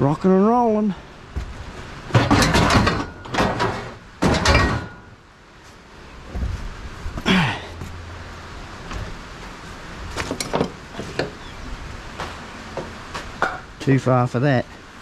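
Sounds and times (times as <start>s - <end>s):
scrap metal clanking and scraping: 2.0s - 5.2s.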